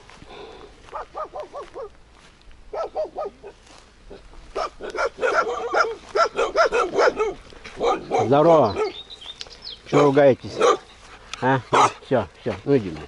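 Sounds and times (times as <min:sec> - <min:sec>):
dogs barking: 0:00.9 - 0:02.0, 0:02.7 - 0:09.1, 0:09.9 - 0:11.1, 0:11.7 - 0:13.0.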